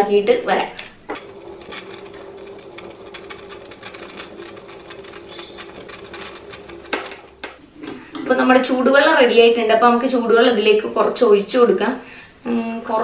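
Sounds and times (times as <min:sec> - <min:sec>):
gas stove hum: 0:01.1 - 0:08.2.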